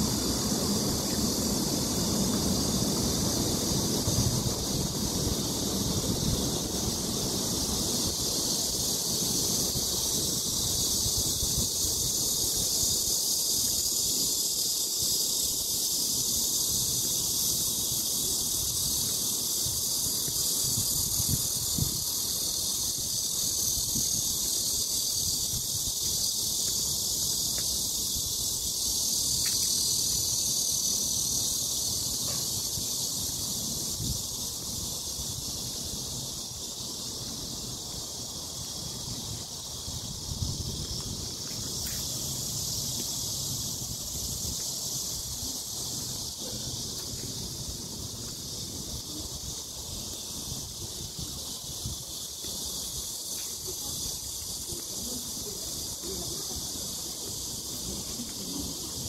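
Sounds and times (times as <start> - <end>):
insects droning: 0.0 - 59.0
wind buffeting microphone: 18.8 - 24.5.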